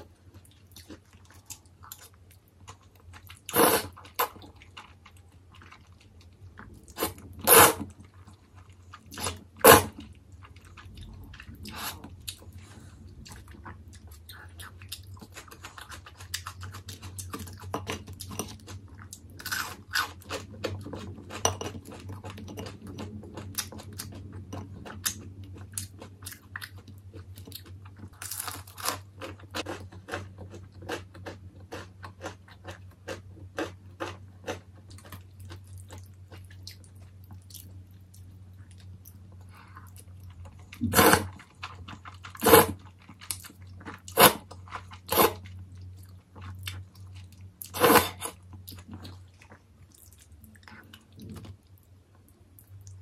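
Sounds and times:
crunchy chewing: 0.2 - 53.0
slurping noodles: 3.5 - 4.0, 6.9 - 7.9, 40.8 - 41.4, 42.4 - 42.8, 45.0 - 45.4, 47.7 - 48.4.

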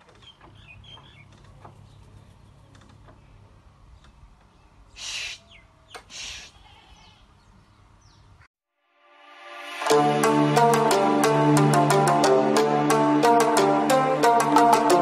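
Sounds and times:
faint bird twittering: 0.1 - 8.5.

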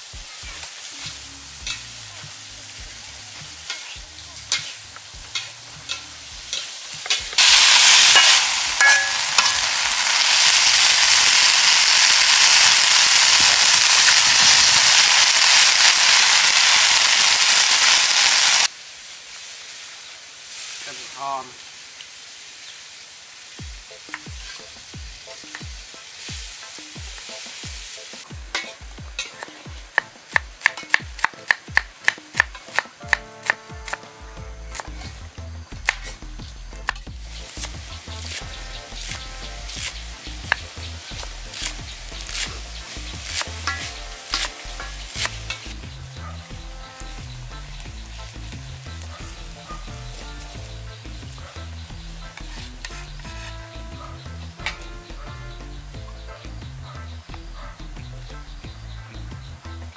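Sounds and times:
steady hiss: 0.0 - 59.7
cleaver chopping on wooden board: 29.4 - 34.0.

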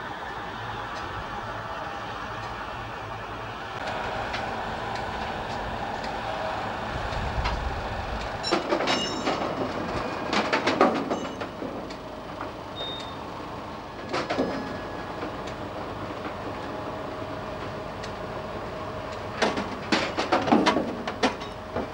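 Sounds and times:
train rumbling past: 0.0 - 21.9
high metallic squeal: 8.4 - 10.4
metallic clanks from wagons: 8.4 - 13.2, 14.0 - 16.6, 19.4 - 21.9.

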